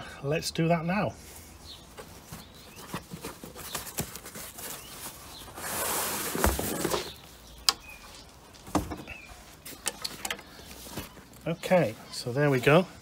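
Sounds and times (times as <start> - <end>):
packaging rustling and scraping: 1.8 - 11.5.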